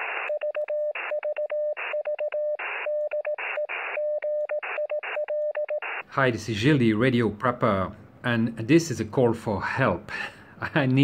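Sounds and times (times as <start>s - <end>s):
radio static: 0.0s - 0.4s
morse code tone: 0.0s - 6.0s.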